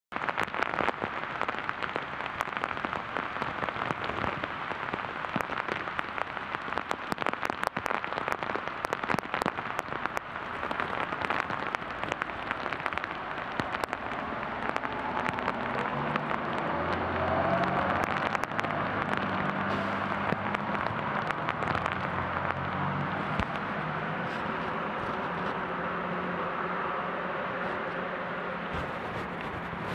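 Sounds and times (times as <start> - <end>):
heavy rain falling: 0.1 - 29.9.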